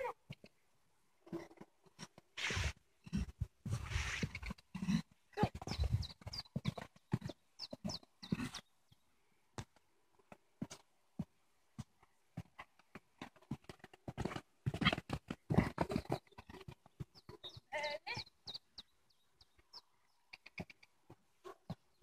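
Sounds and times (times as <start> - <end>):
horse hoofbeats on grass: 3.0 - 8.6, 10.3 - 18.9.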